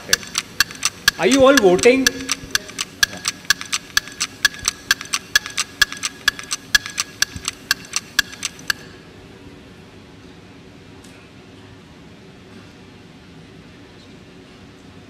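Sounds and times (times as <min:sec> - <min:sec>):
electronic countdown ticking: 0:00.0 - 0:08.9.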